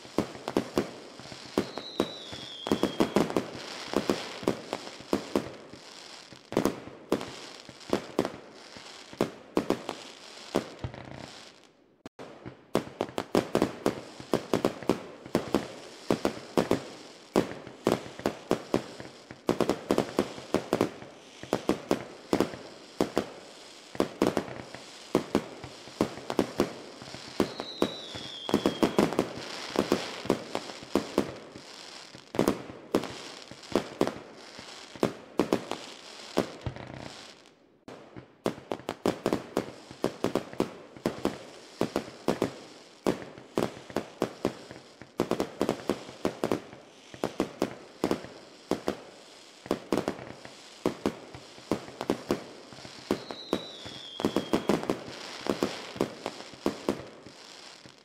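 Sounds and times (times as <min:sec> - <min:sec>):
falling firework whistle: 0:00.0 - 0:06.4, 0:20.0 - 0:34.9, 0:51.8 - 0:57.9
fireworks bangs and crackle: 0:00.0 - 0:58.0.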